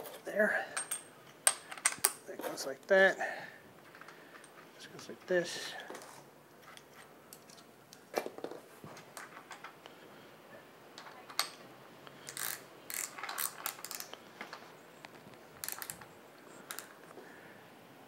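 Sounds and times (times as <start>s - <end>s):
small metal parts clicking: 0.8s - 2.2s, 12.2s - 14.6s, 15.6s - 17.0s.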